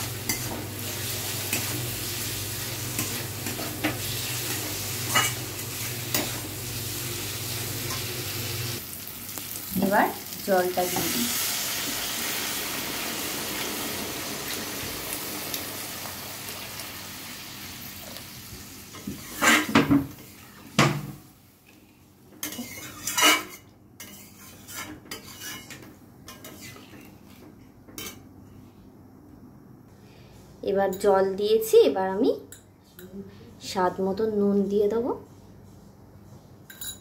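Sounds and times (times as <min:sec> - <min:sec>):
water hissing in hot pan: 0:00.0 - 0:20.7
metal spatula scraping pan: 0:02.9 - 0:06.5, 0:19.0 - 0:20.5, 0:22.4 - 0:27.1
light metal clinks: 0:36.7 - 0:37.0.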